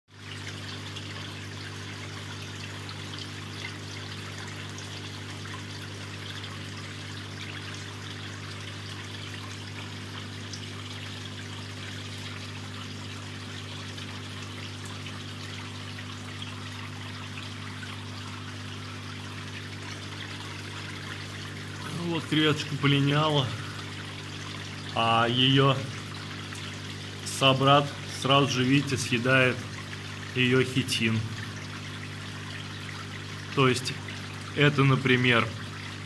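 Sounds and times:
water trickling into a tank: 0.1s - 36.0s.

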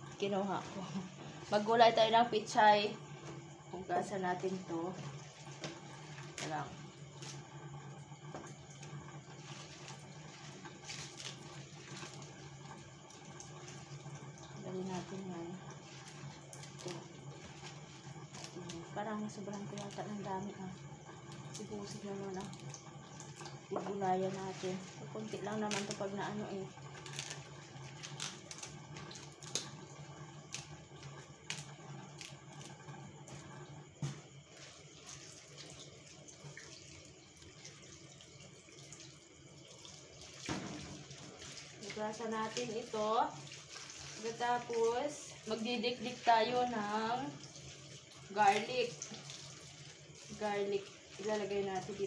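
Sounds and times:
leaves rustling and snapping: 27.0s - 27.4s, 28.0s - 28.7s
leaves snapping and crackling: 27.0s - 29.7s.

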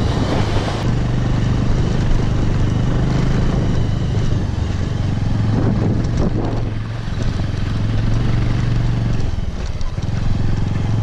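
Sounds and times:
motorcycle engine running: 0.0s - 11.0s
passing vehicle engine: 0.0s - 11.0s
wind noise on microphone: 0.0s - 11.0s.

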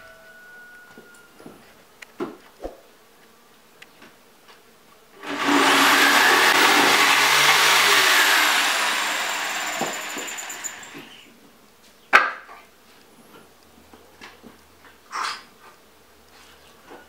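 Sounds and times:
electric jigsaw cutting wood: 5.2s - 11.2s.

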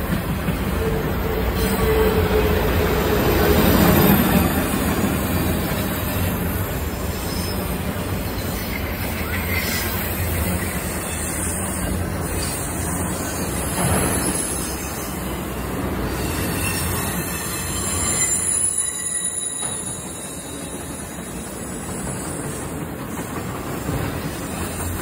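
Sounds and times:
train wheels rumbling on rail: 0.0s - 25.0s
thin wheel squeal: 16.2s - 20.8s.

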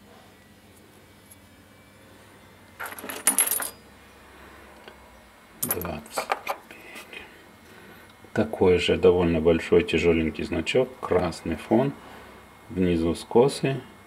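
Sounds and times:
metal pin badges clinking: 2.8s - 3.8s, 5.6s - 6.6s.

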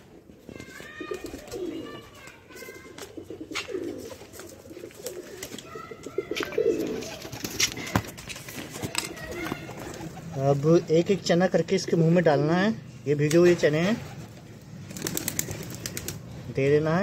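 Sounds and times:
pigeons cooing: 0.0s - 10.7s, 14.0s - 16.4s.

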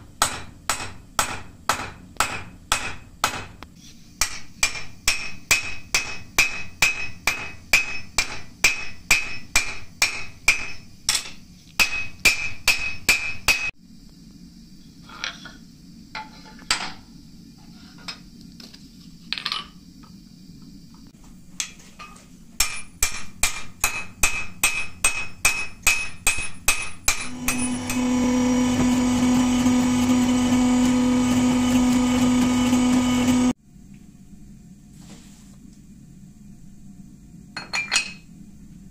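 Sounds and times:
hammer ringing on anvil: 22.6s - 28.0s
machine hum: 27.2s - 34.7s.

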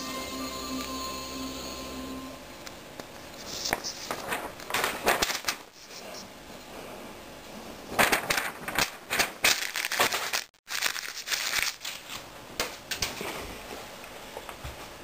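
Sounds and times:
crinkling rustling handling noise: 3.4s - 6.2s, 8.0s - 12.2s.

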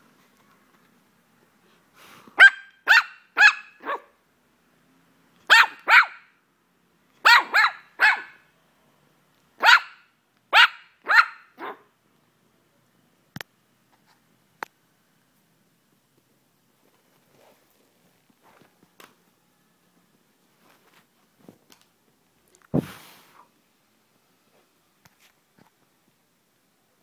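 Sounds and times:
puppy barking high-pitched: 2.4s - 4.2s, 5.5s - 6.4s, 7.2s - 8.5s, 9.6s - 11.9s.

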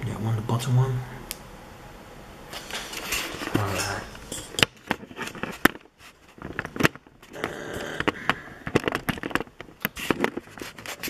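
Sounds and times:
sharp clicks and knocks: 4.4s - 11.0s.

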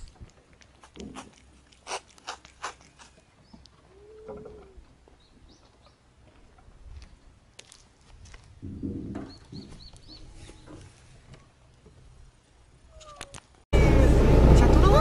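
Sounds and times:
low animal call: 3.8s - 4.9s.

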